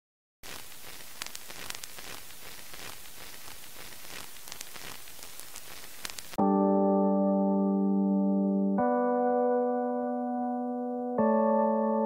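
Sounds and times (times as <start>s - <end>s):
faint crackling clicks: 0.4s - 6.4s
steady hiss: 0.4s - 6.4s.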